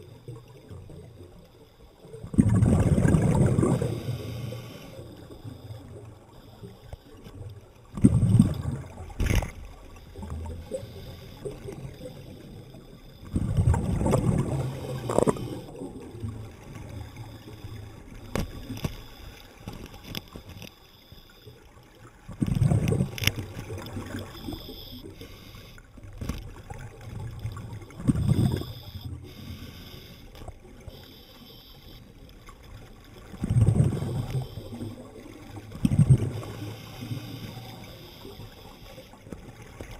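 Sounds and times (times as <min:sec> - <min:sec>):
low water hiss: 0:00.0 - 0:39.9
diver's exhaled air bubbling: 0:02.2 - 0:05.1, 0:07.9 - 0:09.6, 0:13.2 - 0:18.0, 0:22.3 - 0:25.5, 0:27.0 - 0:30.0, 0:33.3 - 0:38.4.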